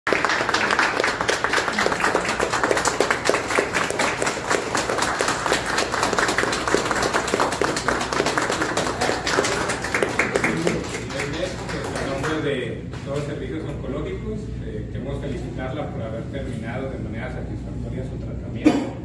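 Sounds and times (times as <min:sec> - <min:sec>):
small group applauding: 0:00.1 - 0:12.6.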